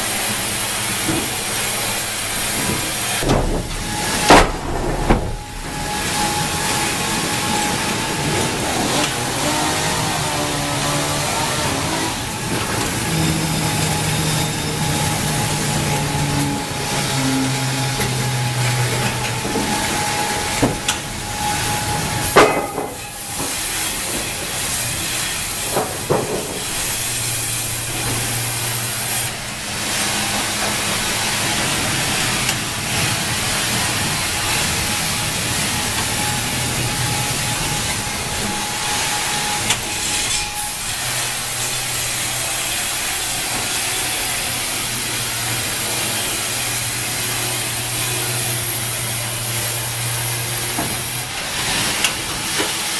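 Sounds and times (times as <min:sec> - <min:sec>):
band saw sawing log: 0:00.0 - 0:52.9
knocks: 0:02.6 - 0:06.4
low hum: 0:03.2 - 0:08.4.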